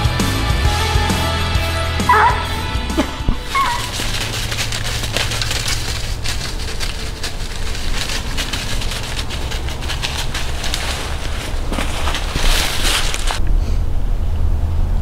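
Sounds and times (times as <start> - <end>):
crackling and rustling: 3.0 - 13.5.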